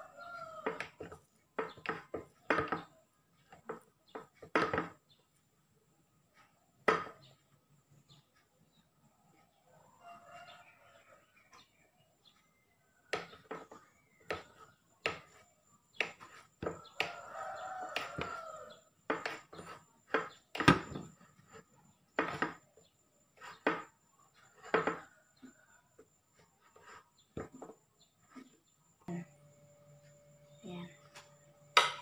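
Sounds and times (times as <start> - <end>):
rooster crowing: 0.0 - 0.8, 16.6 - 18.9.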